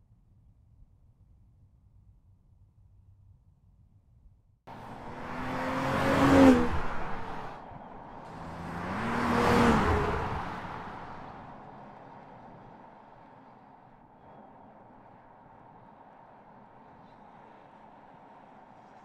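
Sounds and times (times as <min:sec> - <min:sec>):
car driving past: 0:04.7 - 0:19.0.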